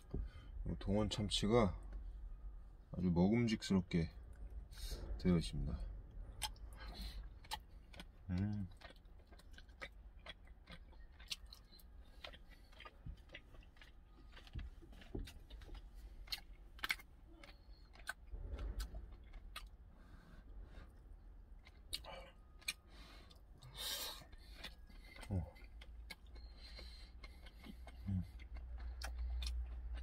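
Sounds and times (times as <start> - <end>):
low rumble: 0.0 - 8.3, 18.1 - 21.5
chewing: 6.2 - 30.0.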